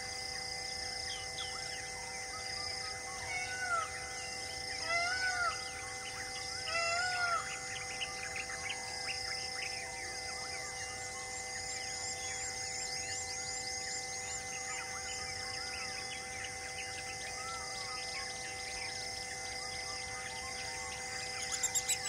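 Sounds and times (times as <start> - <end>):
insect drone: 0.0 - 22.0
arching whistled bird calls: 20.4 - 22.0
birds chirping: 20.5 - 22.0.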